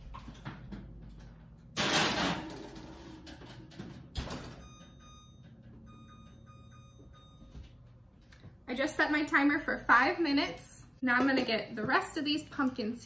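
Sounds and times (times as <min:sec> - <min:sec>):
short electronic beeps: 0:04.6 - 0:07.6.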